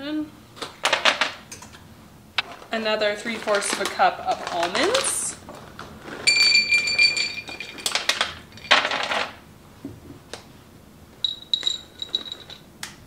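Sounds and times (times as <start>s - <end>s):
nuts rattling: 11.3s - 12.6s.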